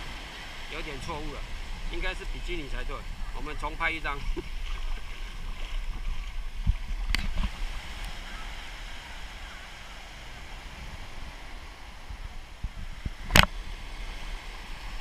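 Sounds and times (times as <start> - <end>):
surf washing on shore: 0.0 - 15.0
wind rumbling on microphone: 0.0 - 15.0.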